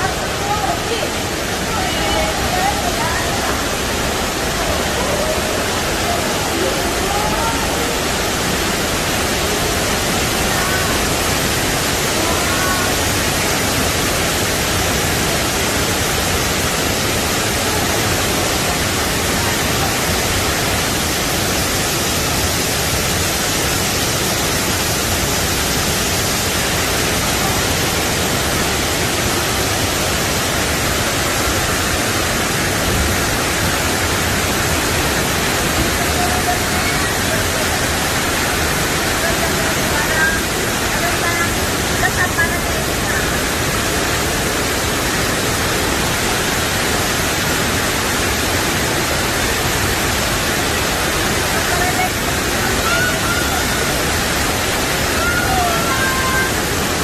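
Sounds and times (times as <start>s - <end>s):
faint voices: 0.0s - 11.3s
waterfall rushing: 0.0s - 57.0s.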